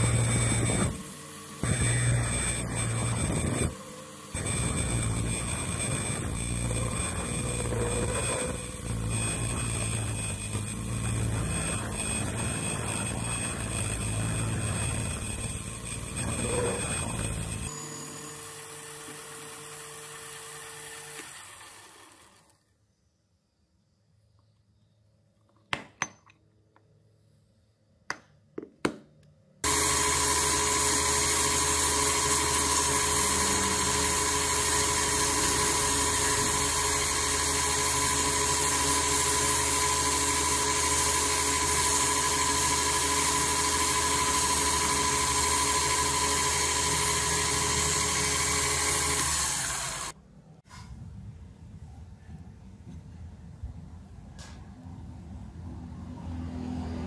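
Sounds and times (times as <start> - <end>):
metal lathe whining: 0.0 - 22.4, 29.6 - 50.2.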